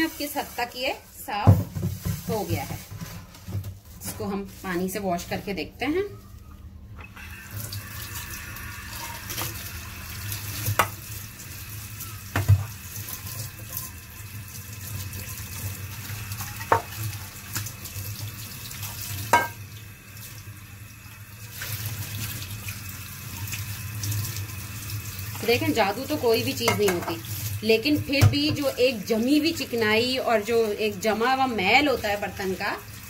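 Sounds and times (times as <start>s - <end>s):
tap water running into sink: 7.0s - 33.0s
pan knocking on sink: 10.8s - 11.0s, 12.3s - 12.7s, 16.6s - 16.9s, 19.3s - 19.6s, 26.6s - 27.2s.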